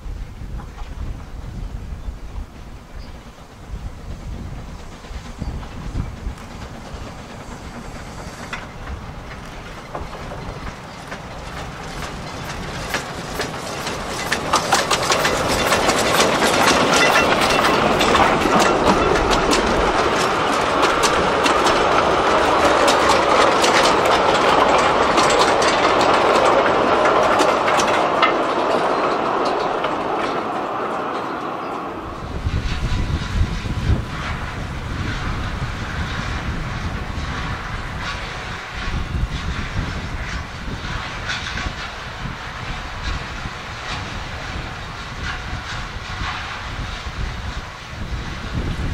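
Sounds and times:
steam train passing: 0.0 - 48.9
wheels clattering over rail joints: 4.3 - 48.9.

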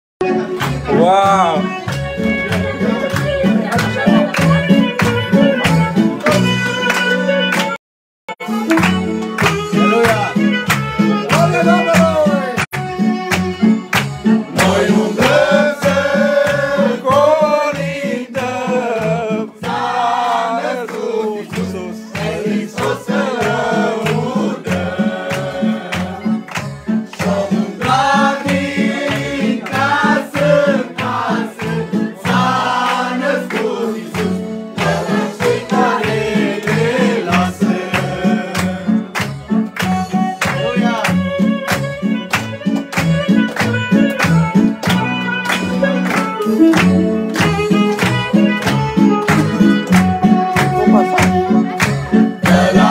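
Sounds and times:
hand clapping: 0.2 - 7.8, 8.4 - 52.9
instrumental accompaniment with beat: 0.2 - 52.9
group singing a carol: 14.5 - 26.4, 27.0 - 39.2, 52.2 - 52.9.

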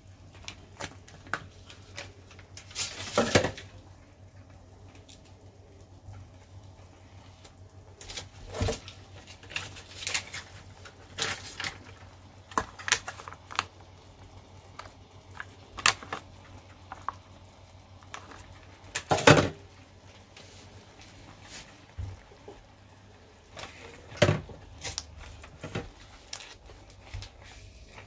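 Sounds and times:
plastic packet rustling: 7.6 - 19.4, 23.0 - 28.0.

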